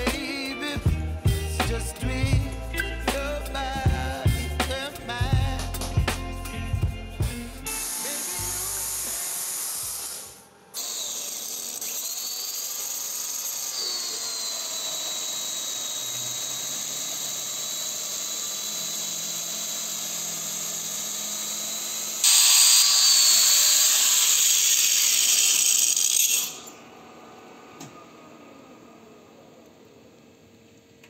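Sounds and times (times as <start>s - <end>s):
angle grinder high whine: 0.0s - 30.7s.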